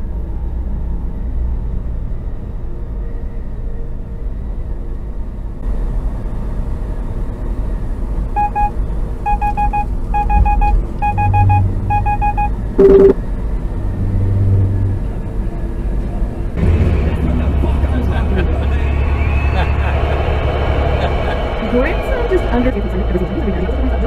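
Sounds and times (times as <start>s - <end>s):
vehicle engine and road rumble: 0.0s - 24.0s
short electronic beeps: 8.4s - 13.2s.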